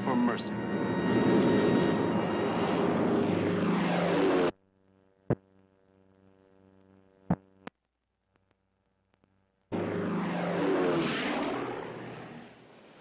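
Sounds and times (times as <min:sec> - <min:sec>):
propeller aircraft engines droning: 0:00.0 - 0:04.6, 0:09.6 - 0:13.0.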